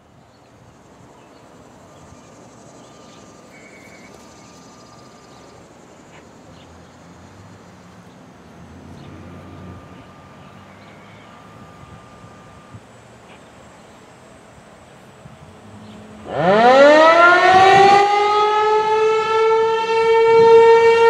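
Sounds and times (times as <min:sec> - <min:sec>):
bird chirps: 0:00.2 - 0:14.3
high insect buzz: 0:00.7 - 0:16.3.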